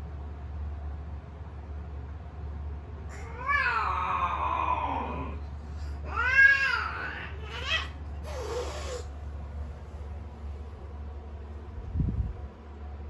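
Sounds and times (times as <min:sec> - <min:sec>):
cats yowling: 0:03.1 - 0:09.1.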